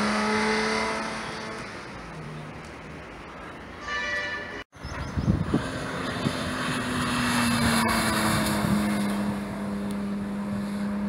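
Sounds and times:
race car engine passing by: 5.5 - 11.0.

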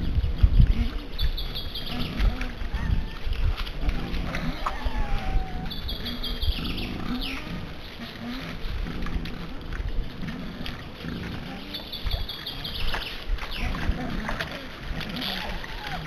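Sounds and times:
wild boar piglets grunting: 0.6 - 16.0.

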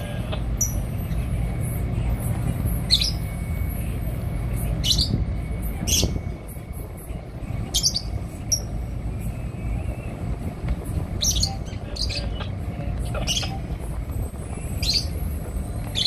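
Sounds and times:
low rumble: 0.0 - 16.0
high bird chirps: 2.8 - 3.4, 4.8 - 6.4, 7.6 - 8.8, 11.2 - 13.8, 14.6 - 15.2.

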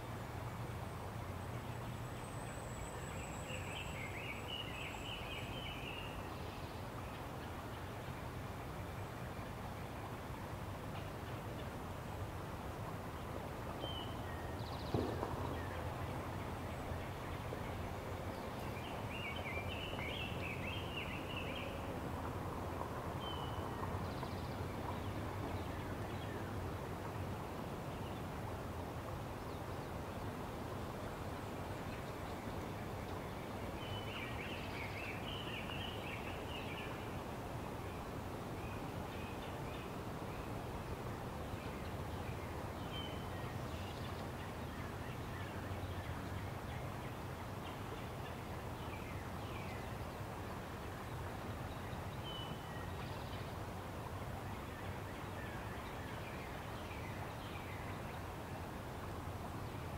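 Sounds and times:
thump: 14.9 - 15.5.

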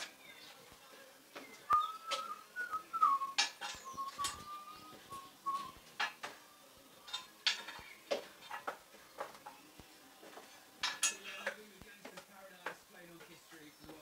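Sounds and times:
metallic clinks of tools on car panels: 10.8 - 11.6.

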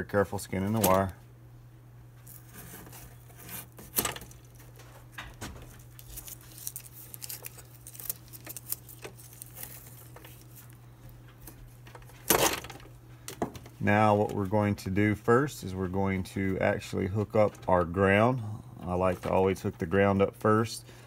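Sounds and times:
wires being handled: 0.4 - 1.2, 2.1 - 14.7
tool stripping cable sheath: 5.8 - 10.6.

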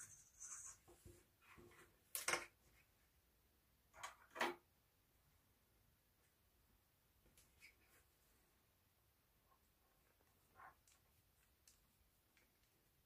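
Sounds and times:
cord rubbing and rustling: 0.0 - 1.9.

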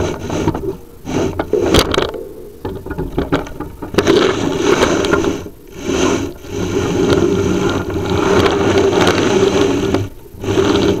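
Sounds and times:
camera scraping inside flue: 0.0 - 11.0.

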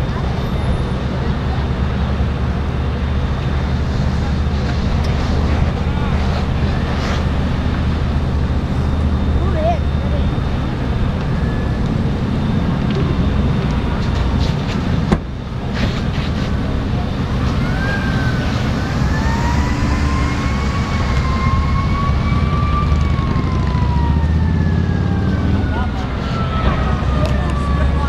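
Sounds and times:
fire engine rumbling: 0.0 - 28.0
siren wailing: 5.8 - 14.4, 17.0 - 28.0.

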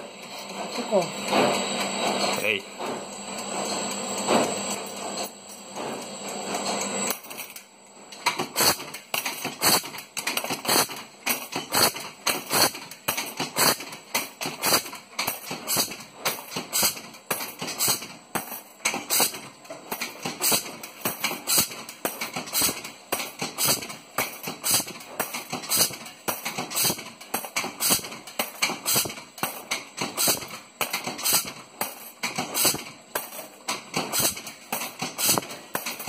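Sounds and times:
punch press stamping metal: 8.2 - 36.0.

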